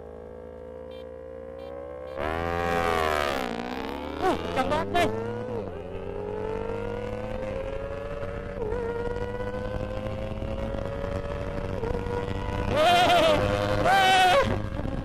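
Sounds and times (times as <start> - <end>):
motorcycle engine accelerating: 0.0 - 15.0.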